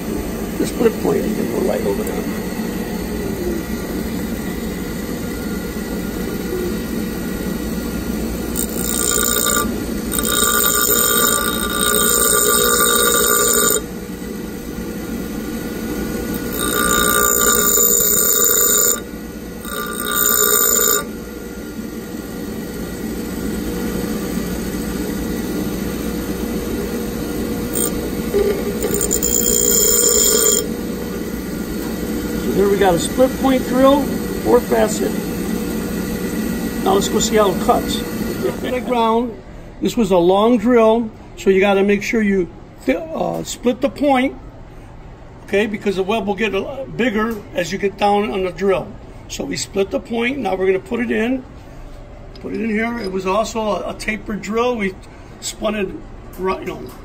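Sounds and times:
bench grinder running: 0:05.7 - 0:39.0
high-pitched grinding of steel: 0:08.5 - 0:13.9, 0:16.3 - 0:21.1, 0:27.7 - 0:30.7.

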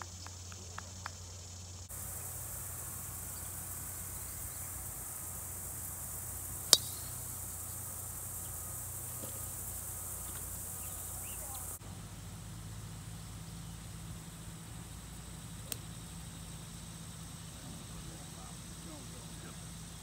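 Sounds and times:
insects buzzing: 0:00.0 - 0:20.0
golf club striking ball: 0:06.6 - 0:07.2.

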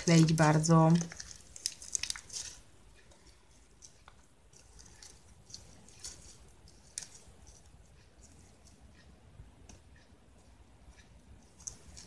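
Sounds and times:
slime squishing and clicking: 0:00.0 - 0:02.6.

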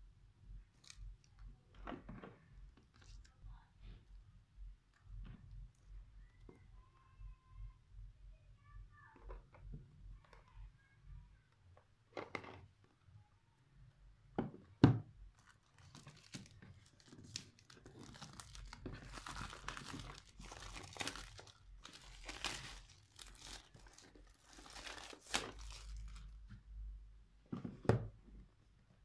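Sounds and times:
plastic shrink wrap crinkling: 0:15.3 - 0:26.4.

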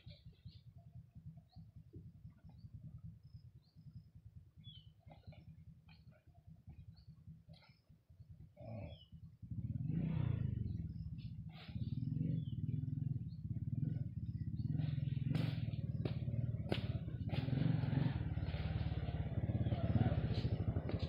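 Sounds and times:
small engine running: 0:09.5 - 0:21.0.

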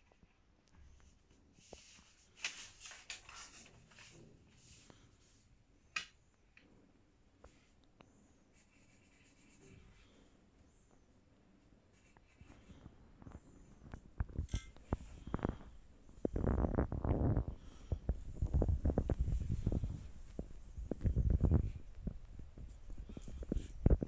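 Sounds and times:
pencil scratching on paper: 0:08.5 - 0:10.1, 0:11.9 - 0:12.9.

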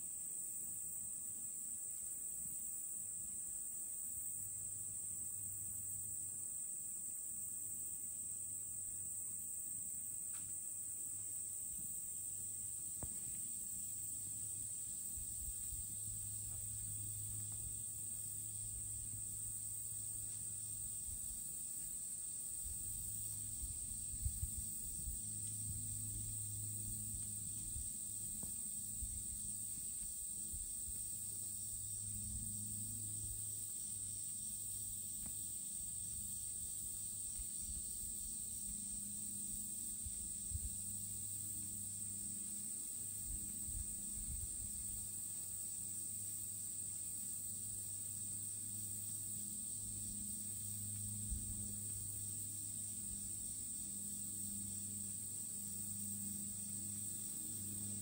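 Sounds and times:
high-pitched insect drone: 0:11.9 - 0:58.0.

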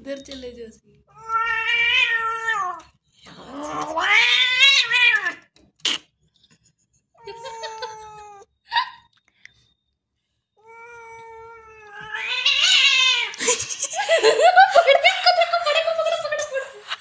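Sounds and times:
cat yowling: 0:01.2 - 0:02.8, 0:03.7 - 0:05.4, 0:07.2 - 0:08.5, 0:10.6 - 0:13.4.

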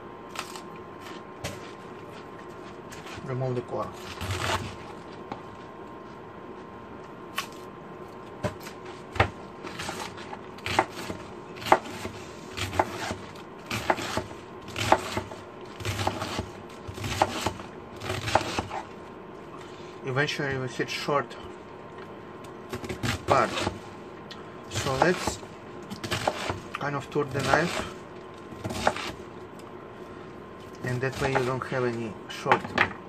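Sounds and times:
knife slicing cabbage on board: 0:04.0 - 0:05.0, 0:08.4 - 0:18.9, 0:22.7 - 0:23.8, 0:24.7 - 0:28.0, 0:28.6 - 0:29.2, 0:31.0 - 0:31.6.

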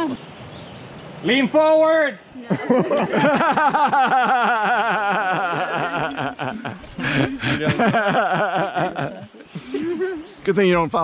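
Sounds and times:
person laughing hard: 0:02.5 - 0:10.2.

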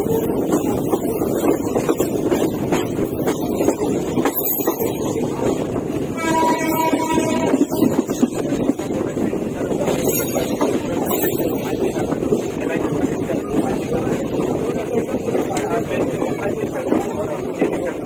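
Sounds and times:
train wheels rumbling on rail: 0:00.0 - 0:18.0
train horn: 0:06.1 - 0:07.9.

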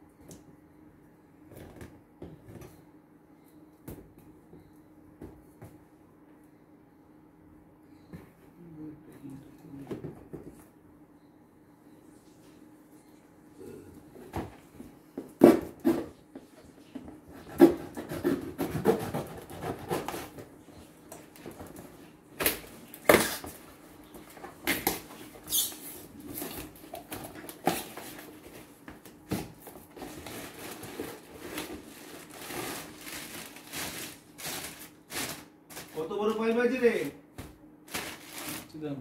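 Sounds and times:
plastic bag crinkling: 0:30.0 - 0:36.4, 0:37.9 - 0:38.8.

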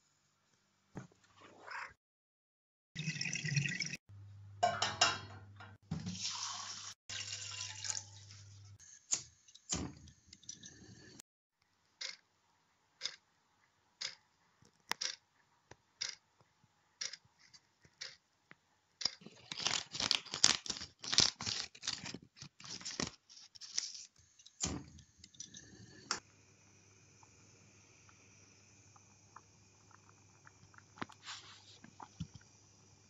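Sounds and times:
clock ticking: 0:12.0 - 0:12.2, 0:13.0 - 0:13.2, 0:14.0 - 0:14.2, 0:14.9 - 0:15.2, 0:16.0 - 0:16.2, 0:17.0 - 0:17.2, 0:18.0 - 0:18.2
faint steady hum: 0:24.4 - 0:33.0.

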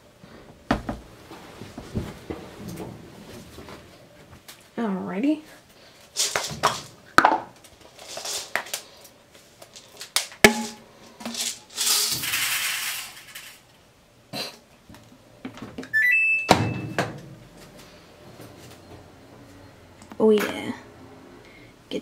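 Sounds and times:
beads pouring rattle: 0:06.2 - 0:06.9, 0:07.8 - 0:08.9, 0:11.2 - 0:13.6
washing machine beeps: 0:15.9 - 0:17.2, 0:18.4 - 0:20.0.

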